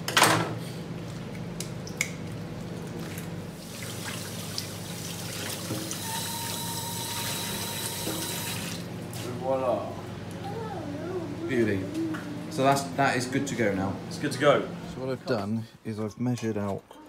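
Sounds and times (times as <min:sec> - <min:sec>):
tap water splashing into sink: 0:02.9 - 0:06.0.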